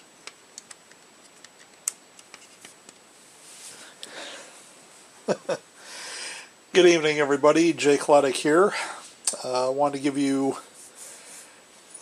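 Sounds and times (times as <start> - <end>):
soft rustle of hands: 2.2 - 5.2, 10.6 - 12.0.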